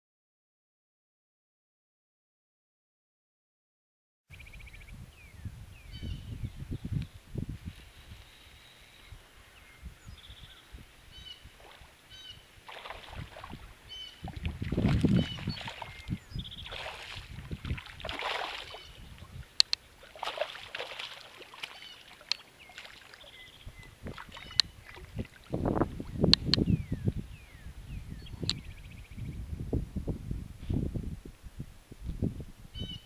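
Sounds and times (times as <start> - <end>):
fish splashing and thrashing: 12.6 - 25.6
sharp clicks: 19.6 - 19.8.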